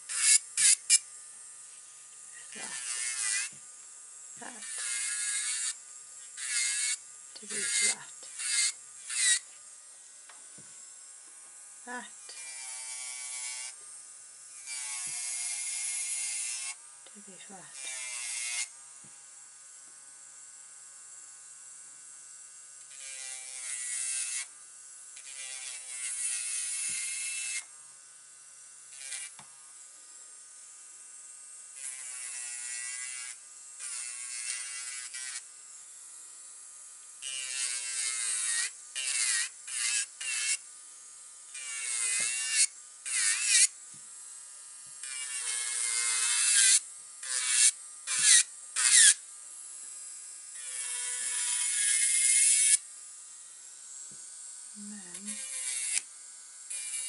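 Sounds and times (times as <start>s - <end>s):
gritty grinding hiss of filing: 0.0s - 1.1s, 1.7s - 3.7s, 4.3s - 11.1s, 11.8s - 18.7s, 22.9s - 24.6s, 25.2s - 27.7s, 31.7s - 36.0s, 37.2s - 43.8s, 44.8s - 49.2s, 50.5s - 52.8s, 53.8s - 57.0s
electric nail drill whine: 0.0s - 57.0s.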